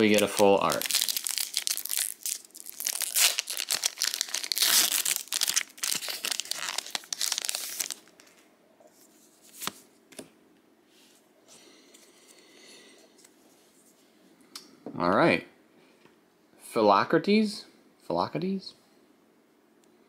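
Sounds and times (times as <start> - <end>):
foil wrapper tearing and crinkling: 0.0 - 8.4.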